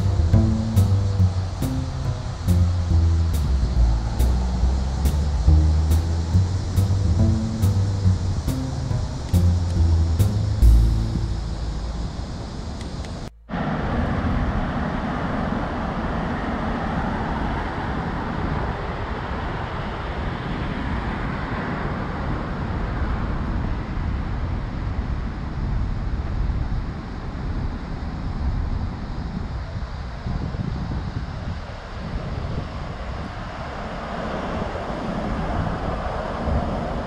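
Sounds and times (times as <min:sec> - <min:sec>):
vehicle passing by: 0:00.0 - 0:13.0
rumble of road traffic: 0:00.0 - 0:37.0.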